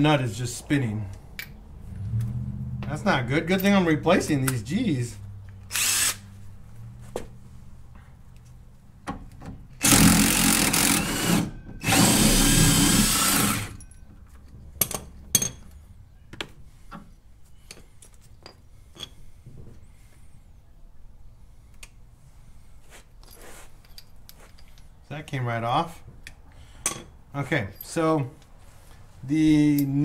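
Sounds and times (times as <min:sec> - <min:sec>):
cordless impact driver spinning: 0:05.7 - 0:06.2
metal clicks of tools handled: 0:23.2 - 0:25.0.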